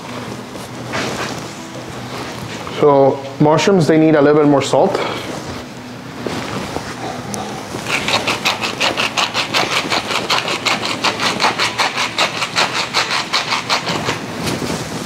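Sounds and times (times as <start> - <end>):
seasoning mill grinding: 7.8 - 14.4.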